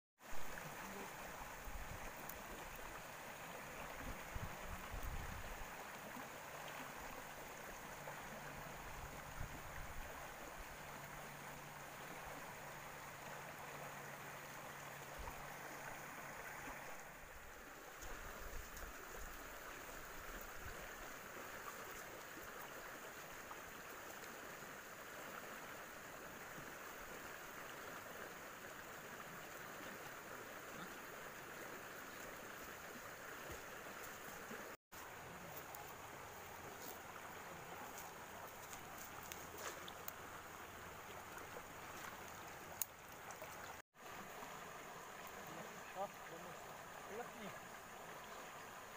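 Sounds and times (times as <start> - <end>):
river water rushing: 0.2 - 48.9.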